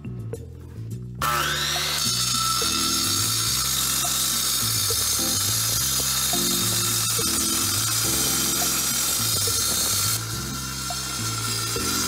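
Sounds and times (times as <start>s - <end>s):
background music with bass line: 0.0s - 12.0s
saw blade screeching through metal: 1.2s - 12.0s.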